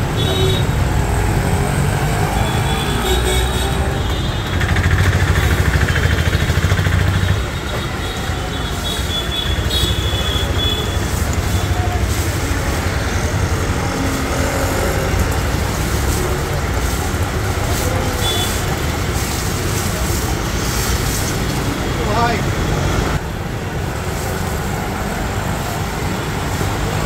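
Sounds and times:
water jet spraying: 8.7 - 22.8, 23.6 - 27.0.

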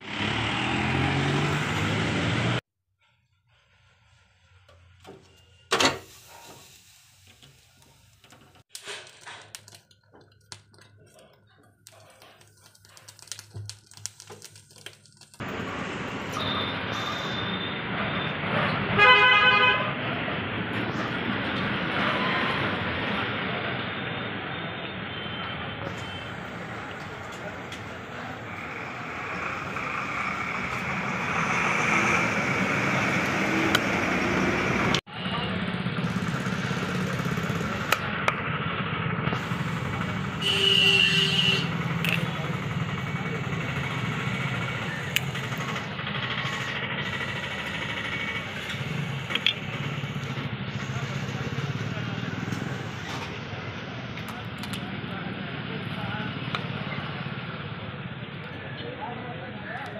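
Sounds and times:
vehicle approaching: 0.0 - 2.6, 26.3 - 40.4, 41.6 - 59.5
small clicks and crackles: 8.1 - 15.4.

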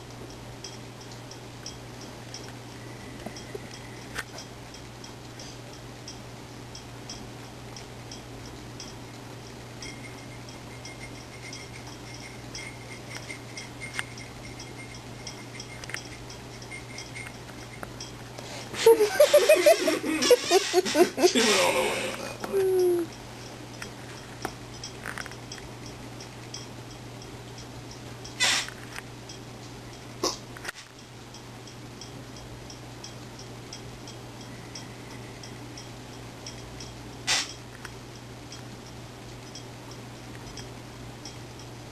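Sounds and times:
faint regular ticking: 0.0 - 18.6, 22.4 - 41.9
steady low hum: 0.0 - 41.9
rapid ticking: 3.3 - 18.4.

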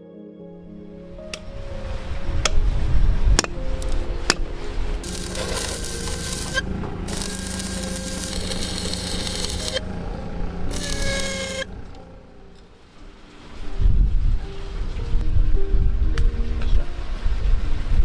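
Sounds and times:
hammer strike on steel: 4.3 - 4.6
arc welding crackling and hissing: 5.0 - 9.8, 10.7 - 11.7.

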